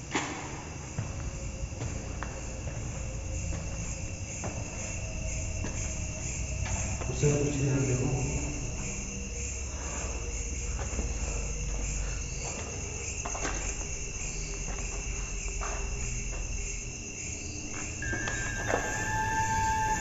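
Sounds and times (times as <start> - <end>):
crickets chirping: 0.0 - 20.0
steady high tone: 18.0 - 20.0.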